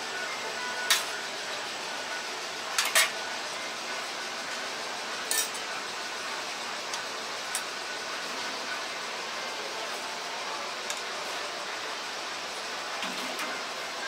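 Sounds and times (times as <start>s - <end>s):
metal utensils clinking: 5.3s - 5.6s.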